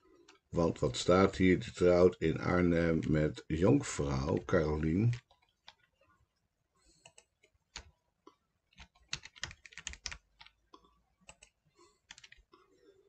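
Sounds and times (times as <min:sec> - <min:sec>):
typing on computer keyboard: 0:07.0 - 0:08.0, 0:08.7 - 0:10.6, 0:11.2 - 0:12.6.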